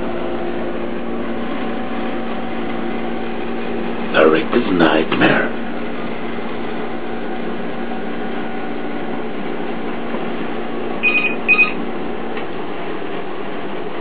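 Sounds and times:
steady low hum: 0.0s - 14.0s
telephone ringing beeps: 11.0s - 11.8s.

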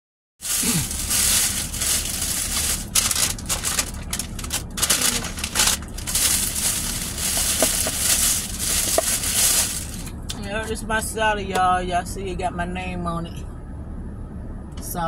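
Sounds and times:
food packaging rustling: 0.4s - 10.1s.

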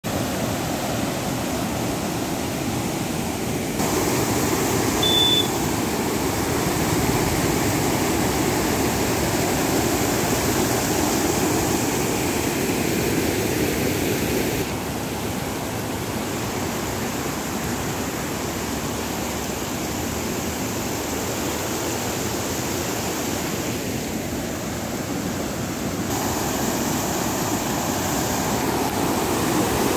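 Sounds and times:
turbulent water rushing: 0.1s - 29.9s
short high peep: 5.0s - 5.6s.

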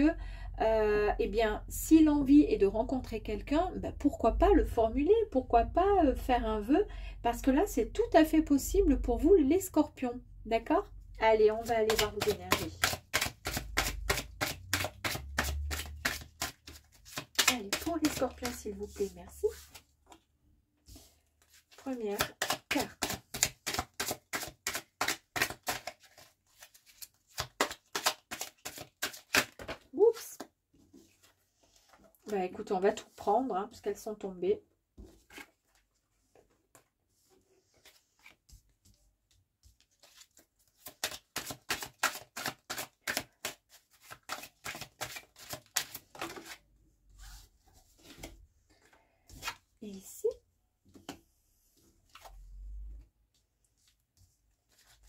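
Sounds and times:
cards being shuffled: 11.6s - 20.2s, 20.9s - 29.8s, 39.6s - 46.6s.

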